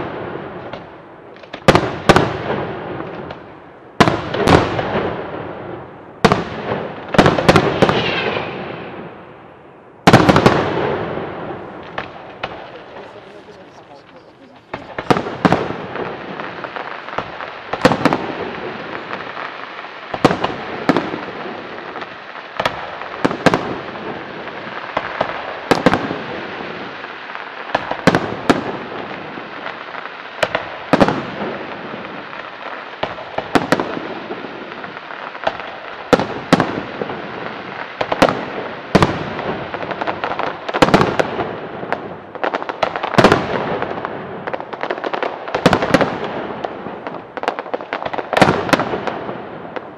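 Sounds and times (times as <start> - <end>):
constant hiss: 5.1 - 42.9.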